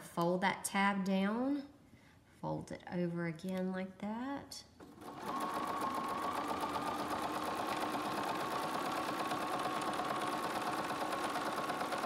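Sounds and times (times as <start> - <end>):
sewing machine stitching: 4.8 - 12.0.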